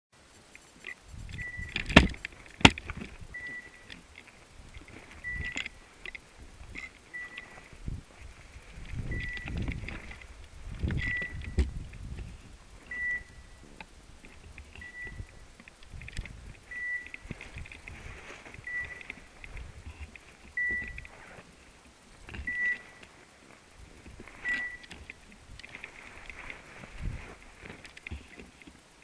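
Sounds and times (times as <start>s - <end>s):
rustling through brush: 0.2s - 29.0s
collar beeper high beeps: 1.3s - 1.8s, 3.3s - 3.9s, 5.2s - 5.7s, 7.1s - 7.6s, 11.0s - 11.6s, 12.9s - 13.6s, 14.8s - 15.4s, 16.7s - 17.2s, 18.6s - 19.1s, 22.4s - 23.0s, 24.4s - 24.9s.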